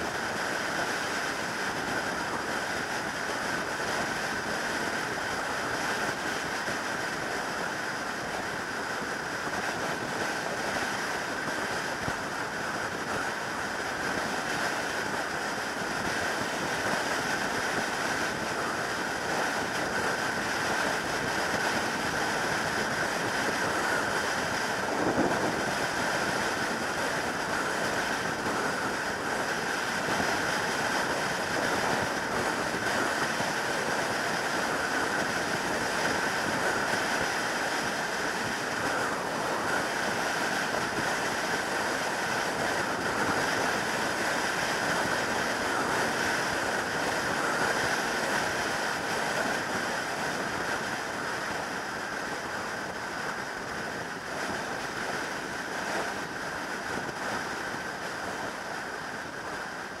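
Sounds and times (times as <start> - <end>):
wind rush over microphone: 0.0 - 60.0.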